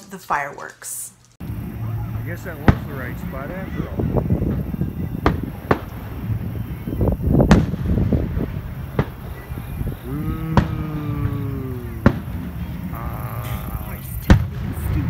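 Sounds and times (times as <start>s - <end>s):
distant fireworks bangs: 1.4s - 15.0s
low rumble: 1.4s - 15.0s
long low held note: 8.5s - 13.8s.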